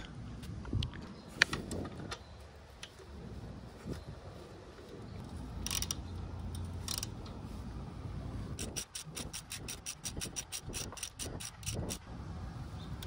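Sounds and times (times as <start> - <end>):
ratchet wrench clicking rapidly: 5.6 - 6.0, 6.8 - 7.1, 8.6 - 12.0.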